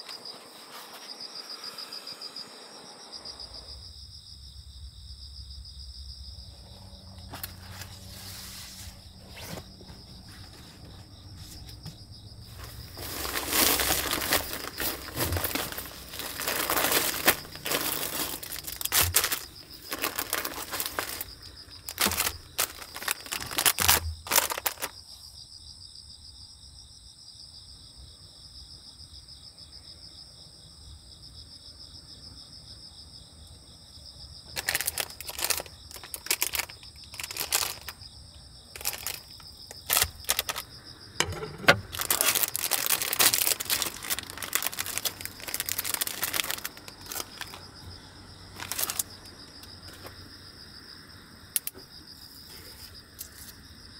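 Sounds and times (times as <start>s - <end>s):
insects trilling: 0.0s - 53.9s
plastic packets rustling and crinkling: 7.2s - 25.1s, 34.5s - 38.0s, 38.7s - 47.8s, 48.5s - 50.2s.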